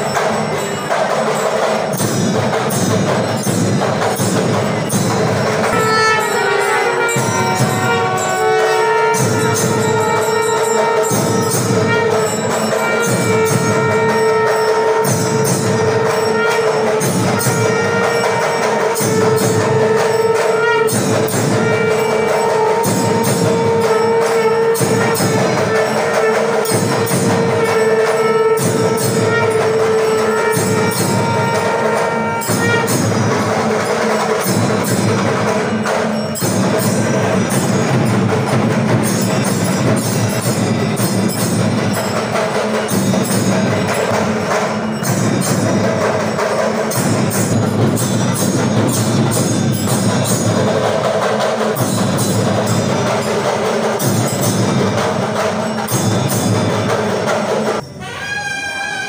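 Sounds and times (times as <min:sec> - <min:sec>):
jingling percussion: 0:00.0 - 0:59.0
long held note: 0:05.6 - 0:32.9.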